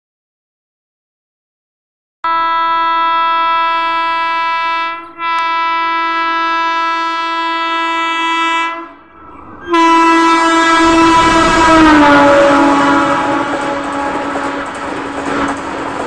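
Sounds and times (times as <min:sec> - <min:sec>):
train horn blaring: 0:02.2 - 0:15.6
rush of passing train: 0:04.4 - 0:16.0.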